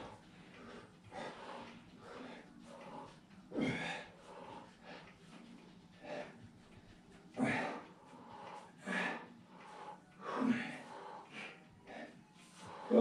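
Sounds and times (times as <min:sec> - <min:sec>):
person breathing hard: 0:00.0 - 0:13.0.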